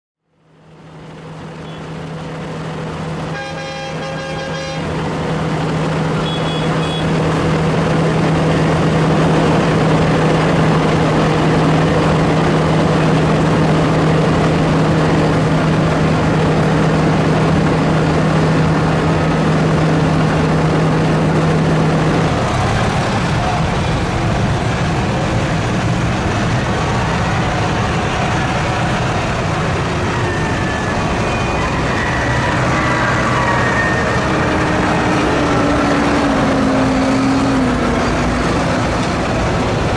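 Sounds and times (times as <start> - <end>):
tractor engine running: 0.3 - 39.9
vehicle horn: 3.3 - 5.0, 6.2 - 7.2.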